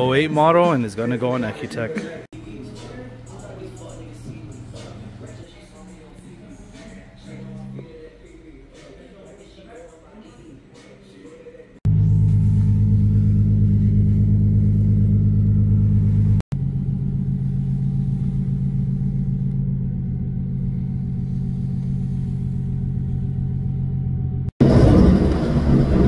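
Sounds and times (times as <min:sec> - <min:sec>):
car engine idling: 0:11.9 - 0:26.0.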